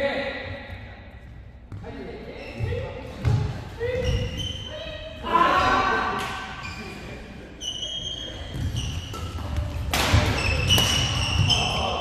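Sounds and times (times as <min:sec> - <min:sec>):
shoes squeaking on court floor: 0:01.2 - 0:12.0
racket hitting shuttlecock: 0:09.0 - 0:11.6.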